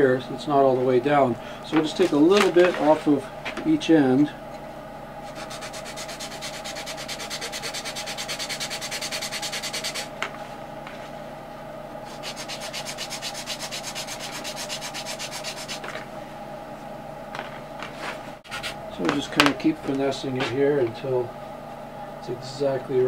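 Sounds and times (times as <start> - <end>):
sanding wood by hand: 5.3 - 10.1, 12.1 - 15.9.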